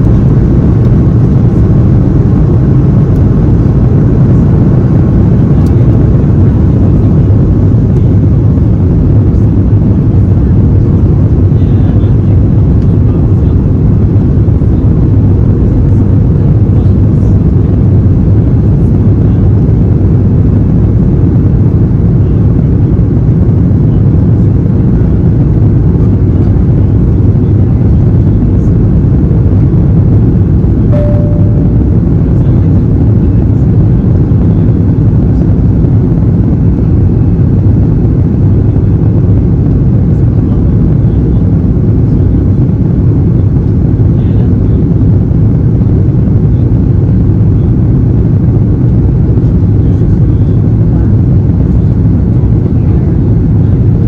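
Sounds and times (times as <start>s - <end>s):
aircraft cabin engine rumble: 0.0s - 54.0s
brief beep: 30.9s - 31.8s.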